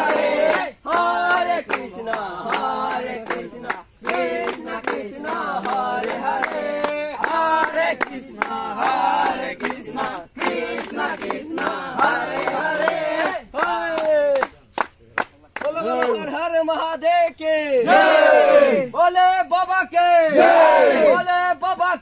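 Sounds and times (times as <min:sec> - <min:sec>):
men chanting in unison: 0:00.0 - 0:14.5, 0:17.5 - 0:19.2, 0:19.9 - 0:21.5
rhythmic hand-clapping: 0:00.0 - 0:16.5.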